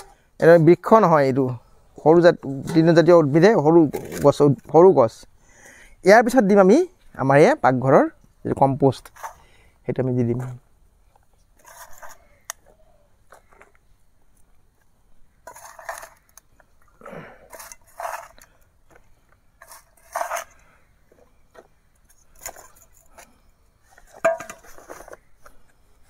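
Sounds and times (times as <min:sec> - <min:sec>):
fingers scraping on metal bowl: 0:11.6 - 0:12.3.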